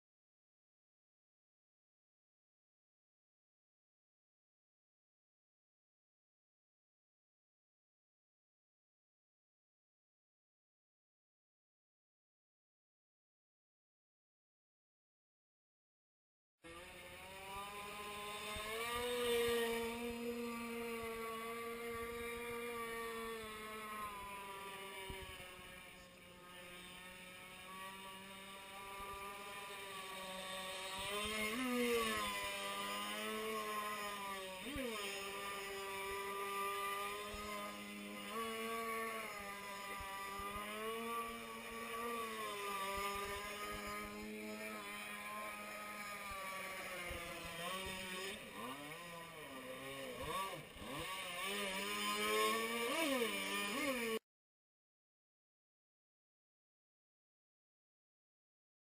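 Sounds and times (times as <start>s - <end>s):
boat engine revving: 16.7s - 54.2s.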